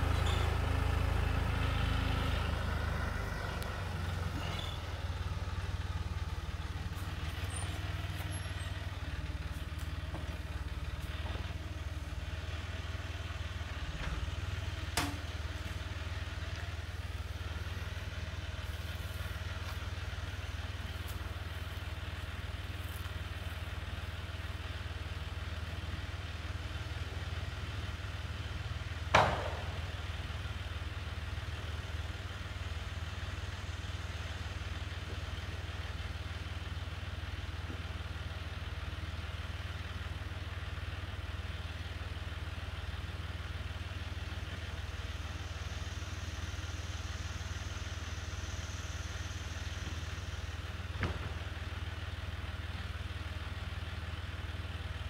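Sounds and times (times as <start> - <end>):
tractor engine idling: 0.0 - 55.0
sharp knock: 29.2 - 29.8.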